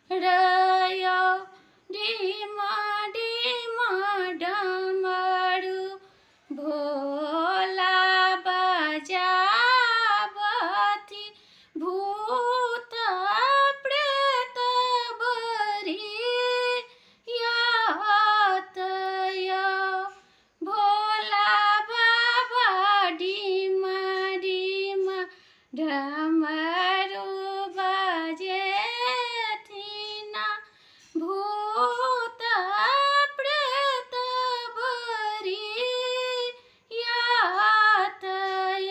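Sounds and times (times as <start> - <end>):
woman singing devotional song: 0.0 - 38.9.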